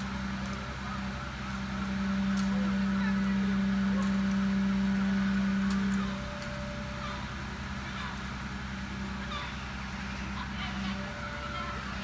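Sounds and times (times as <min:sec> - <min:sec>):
truck engine humming: 0:00.0 - 0:12.0
birds chirping faintly: 0:02.6 - 0:12.0.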